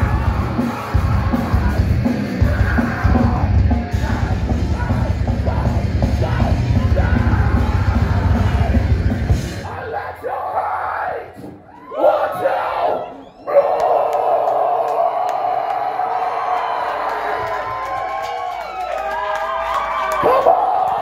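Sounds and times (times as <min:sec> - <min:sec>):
pounding drums: 0:00.0 - 0:09.7
rock band playing live: 0:00.0 - 0:09.7
heavy bass: 0:00.0 - 0:10.2.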